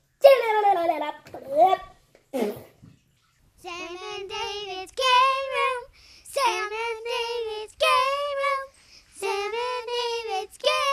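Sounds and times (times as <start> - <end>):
child singing: 3.6 - 10.9.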